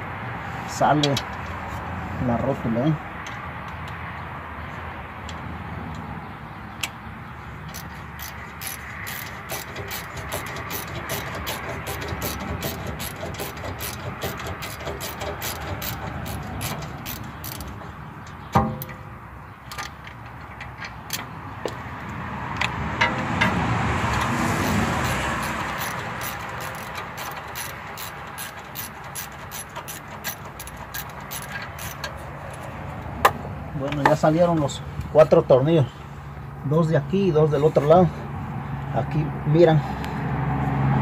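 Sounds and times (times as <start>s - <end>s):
ratchet wrench clicking: 7.6s - 18.9s, 22.6s - 32.7s
metal knock: 18.5s - 19.1s.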